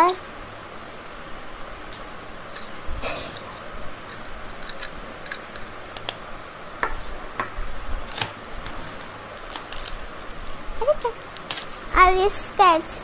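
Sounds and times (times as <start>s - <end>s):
plastic wrapping crackling: 9.0s - 11.8s.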